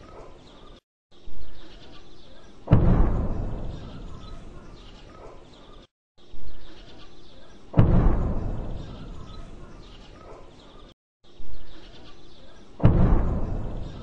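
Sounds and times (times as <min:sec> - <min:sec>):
faint birdsong: 0:00.0 - 0:14.0
distant bomb explosions: 0:02.7 - 0:04.7, 0:07.8 - 0:09.8, 0:12.8 - 0:14.0.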